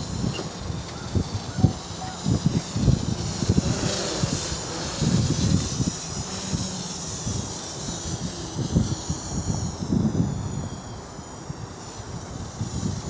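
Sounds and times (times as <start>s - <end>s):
drone rotors whining: 0.0s - 13.0s
wind gusts buffeting microphone: 0.0s - 13.0s.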